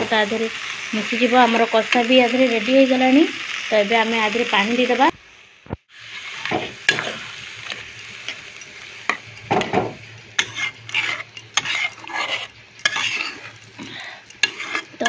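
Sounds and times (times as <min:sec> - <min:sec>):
steady sizzle: 0:00.0 - 0:15.0
ladle scraping a pan: 0:09.1 - 0:15.0.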